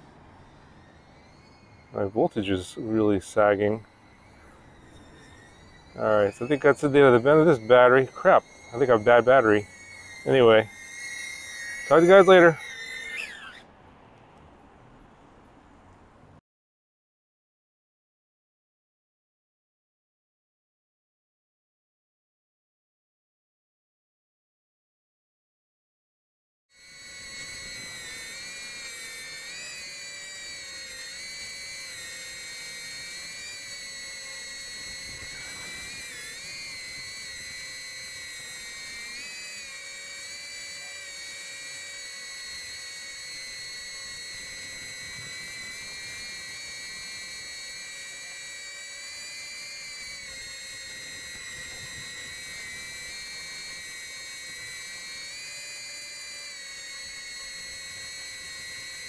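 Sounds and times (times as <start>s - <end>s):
drone motors whining: 0.0s - 14.5s, 26.8s - 59.0s.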